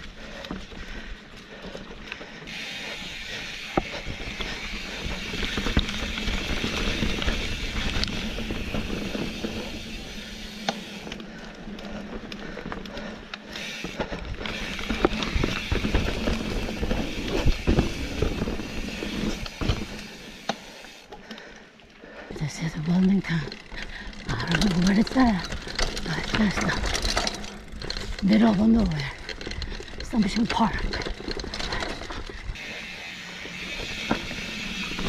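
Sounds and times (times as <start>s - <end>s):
bike rattling over bumps: 0.0s - 35.0s
bike tyres rolling on dirt: 0.0s - 35.0s.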